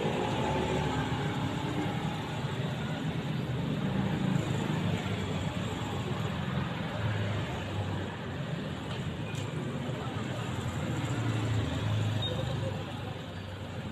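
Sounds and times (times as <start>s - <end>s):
traffic rumble of engines: 0.0s - 13.9s.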